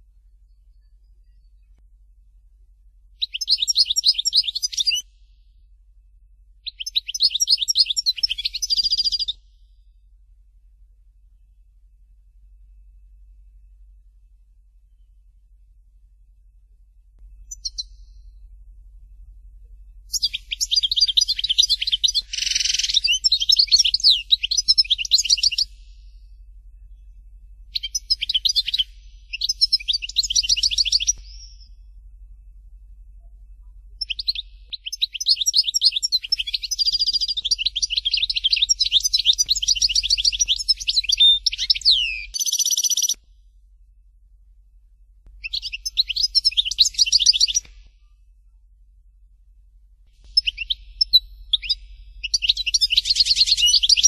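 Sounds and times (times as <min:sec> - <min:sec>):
bird singing twittering trills: 0:03.2 - 0:05.3, 0:06.6 - 0:10.0, 0:17.2 - 0:19.3, 0:19.9 - 0:43.2, 0:45.4 - 0:48.4, 0:50.1 - 0:54.0.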